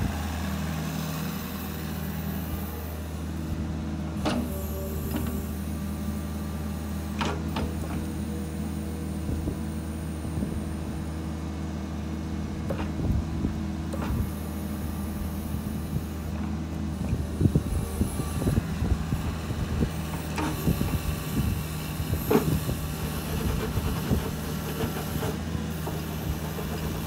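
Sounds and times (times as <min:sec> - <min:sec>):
excavator diesel engine running: 0:00.0 - 0:27.0
hydraulics working: 0:12.6 - 0:27.0.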